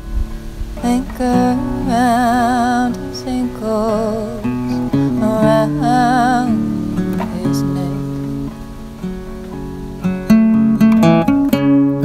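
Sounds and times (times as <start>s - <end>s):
acoustic guitar strummed and picked: 0.0s - 12.0s
woman singing with vibrato: 0.8s - 8.6s.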